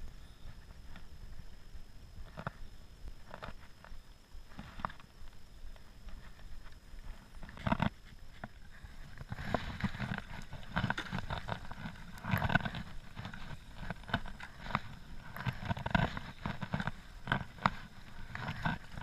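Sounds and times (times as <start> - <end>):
paddle strokes in water: 6.2 - 19.0.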